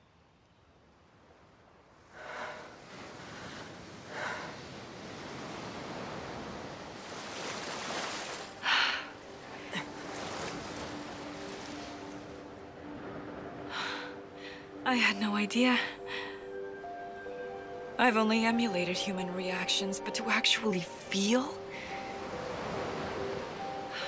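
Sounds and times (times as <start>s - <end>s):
ocean surf on beach: 0.9s - 14.8s, 21.5s - 24.0s.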